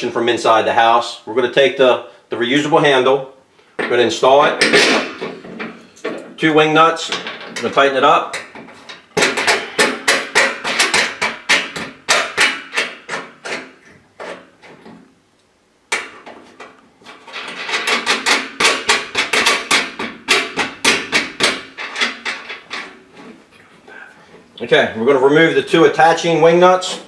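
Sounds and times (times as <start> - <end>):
metallic clicking and rattling: 16.0 - 23.0.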